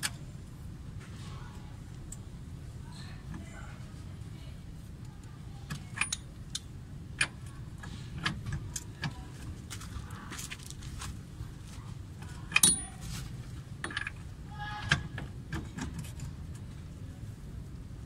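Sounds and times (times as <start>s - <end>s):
sharp ringing metal clinks: 12.6s - 13.0s
metal clinks and rattles: 12.6s - 13.2s.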